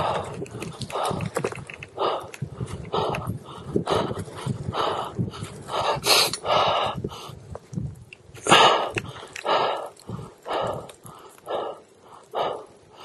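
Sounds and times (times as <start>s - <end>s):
person breathing hard: 0.0s - 7.5s, 8.4s - 13.0s.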